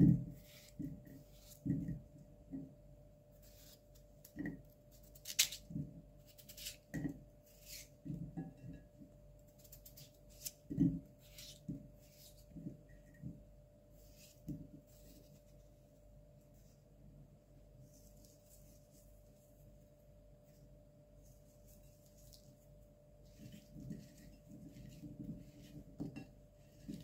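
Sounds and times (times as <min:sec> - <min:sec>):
knife slicing potato: 0:03.4 - 0:08.3, 0:09.5 - 0:12.6.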